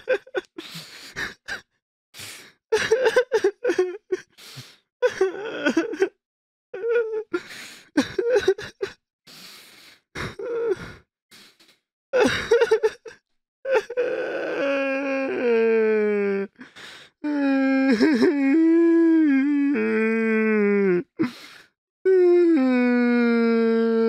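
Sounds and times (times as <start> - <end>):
person crying and sobbing: 0.0 - 6.2, 6.8 - 9.4, 10.2 - 11.6, 12.2 - 24.0
sharp gasping breaths: 0.6 - 1.4, 2.2 - 2.6, 4.3 - 4.9, 7.4 - 7.9, 9.3 - 11.9, 16.6 - 17.2, 21.2 - 21.8.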